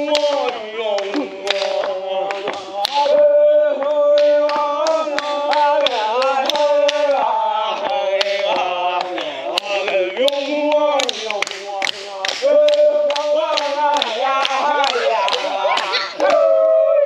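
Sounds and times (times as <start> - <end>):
sharp percussive hits: 0.0 - 7.2
men chanting together: 0.0 - 16.8.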